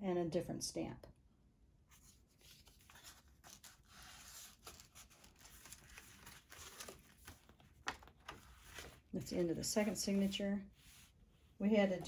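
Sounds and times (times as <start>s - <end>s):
paper and card rustling: 1.9s - 12.0s
light taps of pages: 6.8s - 9.0s.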